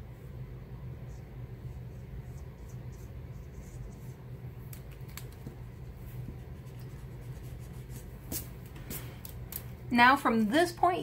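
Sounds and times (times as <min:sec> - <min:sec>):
low hum: 0:00.0 - 0:10.7
pencil scratching on paper: 0:01.0 - 0:04.2, 0:06.2 - 0:08.1.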